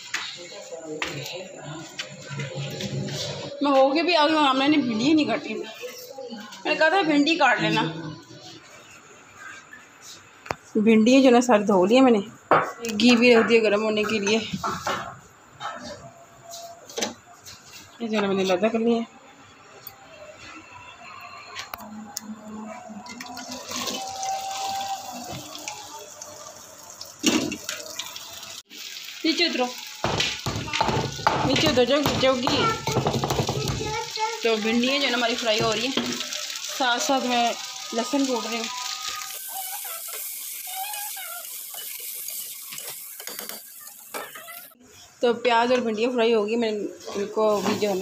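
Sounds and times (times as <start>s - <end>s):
vegetables sizzling in hot oil: 23.4s - 44.8s, 47.4s - 48.0s.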